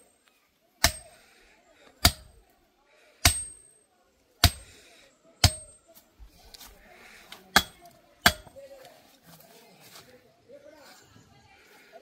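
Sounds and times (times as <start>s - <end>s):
mallet striking metal tube: 3.2s - 3.7s, 5.4s - 5.7s, 7.6s - 8.5s.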